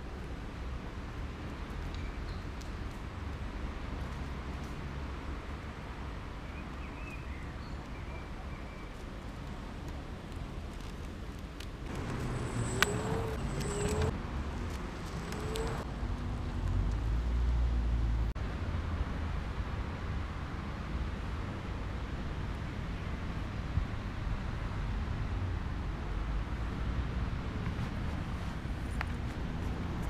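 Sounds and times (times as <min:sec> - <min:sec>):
scooter wheels rolling on asphalt: 0:00.0 - 0:17.1, 0:27.6 - 0:30.0.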